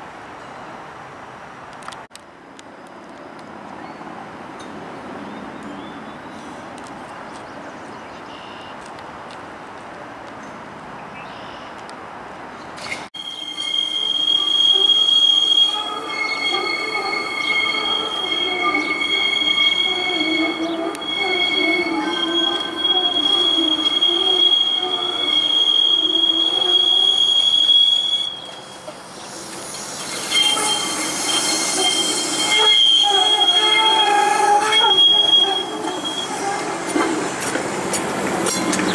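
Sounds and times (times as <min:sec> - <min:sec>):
streetcar wheels squealing: 0:12.8 - 0:38.9
harsh hiss of streetcar: 0:13.3 - 0:38.9.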